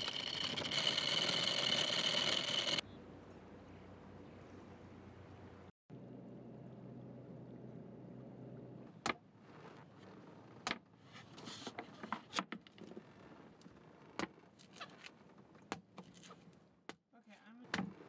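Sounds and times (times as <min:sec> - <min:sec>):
low steady hum: 0:02.8 - 0:09.0.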